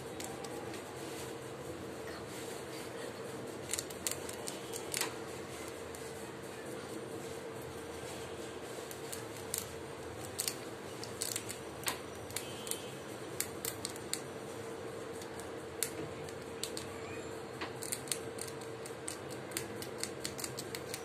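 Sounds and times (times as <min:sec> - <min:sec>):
steady hum: 0:00.0 - 0:21.0
rat gnawing crunching clicks: 0:03.6 - 0:05.2, 0:08.9 - 0:14.3, 0:15.1 - 0:16.9, 0:17.6 - 0:21.0.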